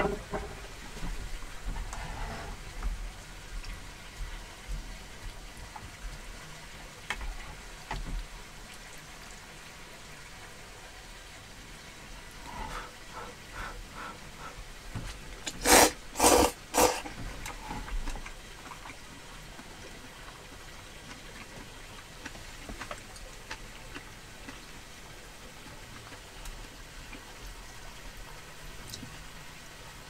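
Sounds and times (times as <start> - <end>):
person slurping noodles: 15.6 - 17.1.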